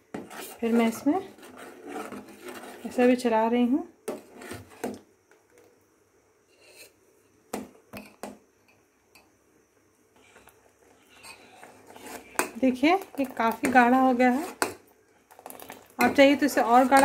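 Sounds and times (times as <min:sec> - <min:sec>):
spoon scraping steel pot: 0:00.1 - 0:03.2, 0:06.5 - 0:07.0, 0:10.2 - 0:14.8, 0:15.4 - 0:17.0.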